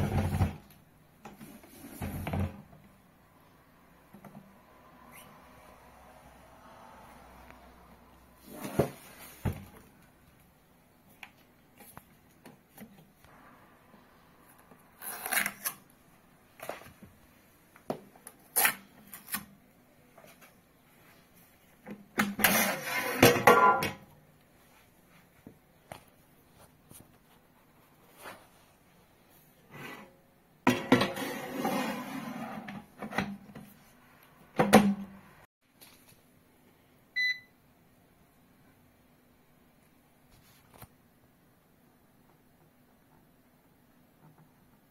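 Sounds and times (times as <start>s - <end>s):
basket scraping and rattling: 0.0s - 0.6s, 30.7s - 33.2s.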